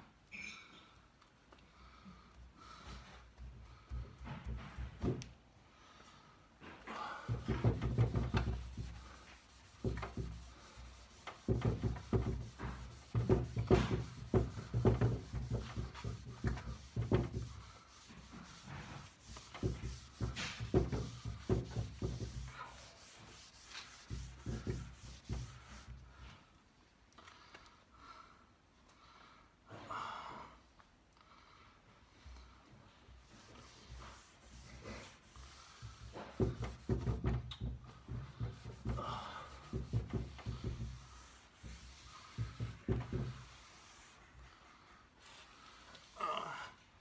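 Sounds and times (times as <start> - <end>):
pad rubbing on wood: 7.3 - 26.0, 33.2 - 45.8.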